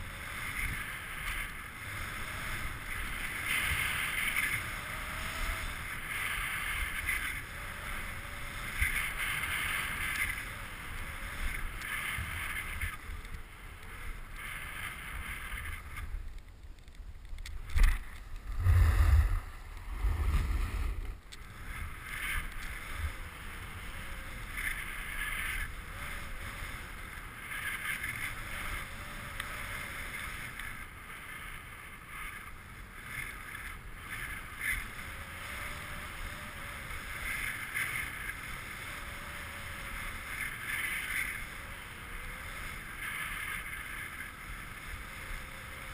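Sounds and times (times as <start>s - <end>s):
wind buffeting microphone: 17.7s - 21.3s.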